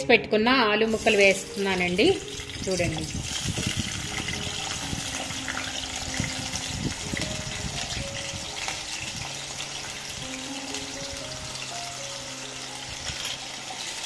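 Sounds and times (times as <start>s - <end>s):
hot oil sizzling in a pan: 0.8s - 14.0s.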